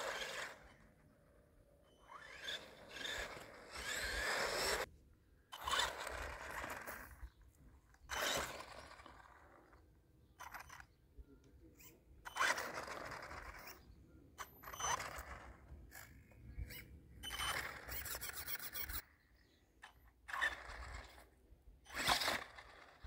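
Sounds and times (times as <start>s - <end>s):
electric motor whine: 0.0s - 0.9s, 1.9s - 4.9s, 5.6s - 7.2s.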